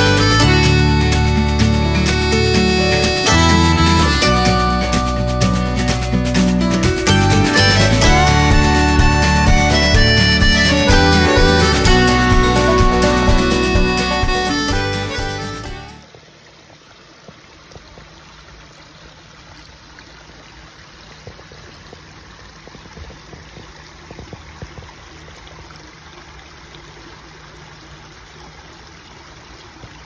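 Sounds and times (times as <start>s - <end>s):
brook trickling over stones: 16.0s - 30.0s.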